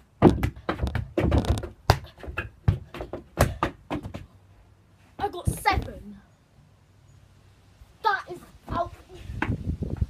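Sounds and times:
football thuds on wooden decking: 0.1 - 4.3.

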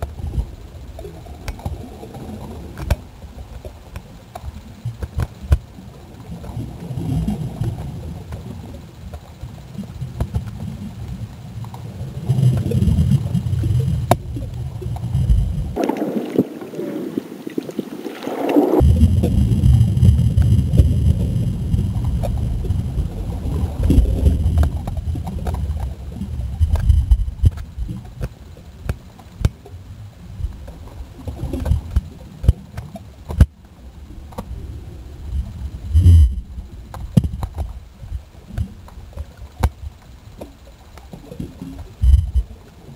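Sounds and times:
underwater rumbling and gurgling: 0.0 - 42.9
thin hiss: 15.8 - 19.1.

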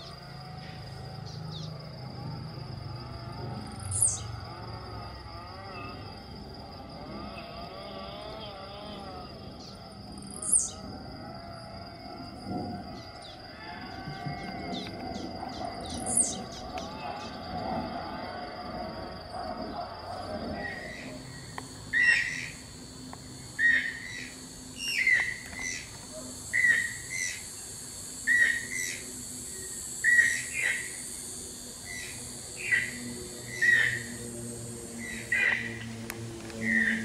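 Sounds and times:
faint chirps: 0.0 - 34.2
high insect buzz: 0.0 - 37.0
toucan calling: 21.9 - 22.6.

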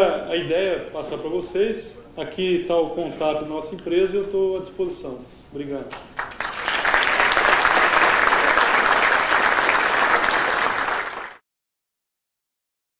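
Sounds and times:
audience applauding: 6.2 - 11.4.

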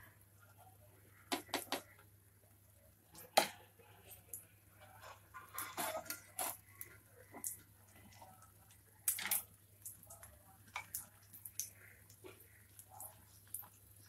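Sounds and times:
oil spattering and crackling: 3.1 - 14.0.

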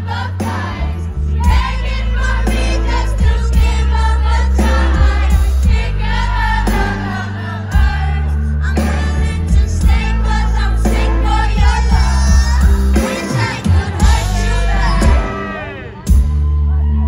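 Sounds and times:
live band with bass: 0.0 - 17.0.

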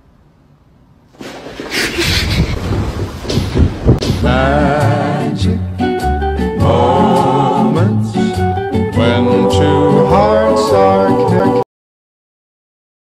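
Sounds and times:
bass line: 3.5 - 11.6
voices singing long wavering notes: 6.5 - 11.6.

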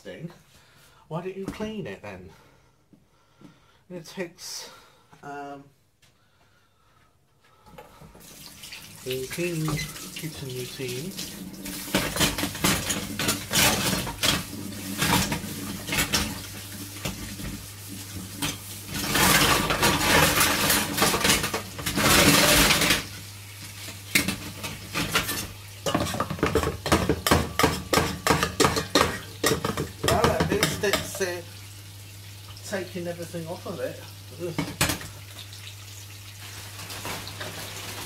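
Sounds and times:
dishes and cutlery clattering: 11.9 - 16.4, 24.1 - 31.2.

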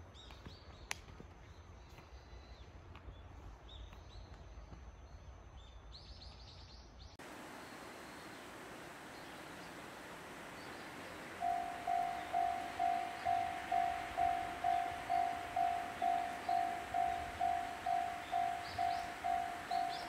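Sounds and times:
birds chirping: 7.2 - 20.0
steady hiss: 7.2 - 20.0.

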